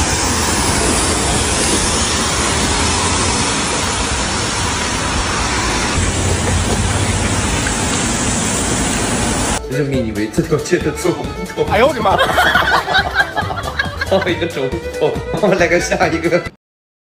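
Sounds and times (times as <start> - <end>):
loud rushing noise: 0.0 - 9.6
low rumble: 0.0 - 9.6.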